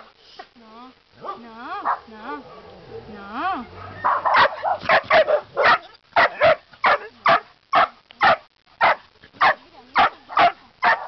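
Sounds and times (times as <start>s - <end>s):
dog barking: 3.8s - 11.0s.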